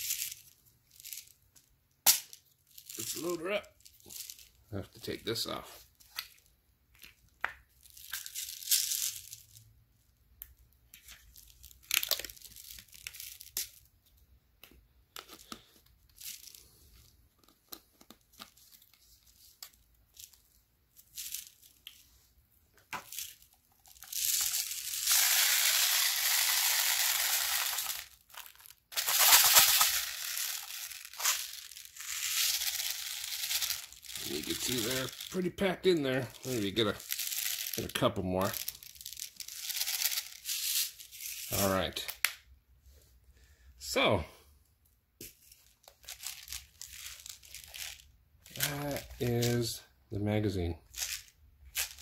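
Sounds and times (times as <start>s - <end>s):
clicks and rustles of handling: 10.4s - 20.5s
metal pellets pouring rattle: 23.1s - 35.5s, 36.1s - 41.7s.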